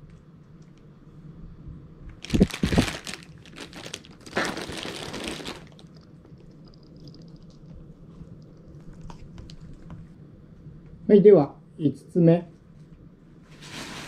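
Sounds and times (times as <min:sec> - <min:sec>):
plastic packaging crinkling: 0:02.2 - 0:06.0.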